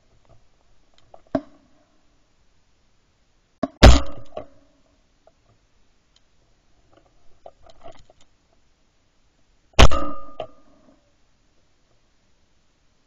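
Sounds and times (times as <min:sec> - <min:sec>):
shotgun shot with echo: 0:03.8 - 0:04.3, 0:09.8 - 0:10.4.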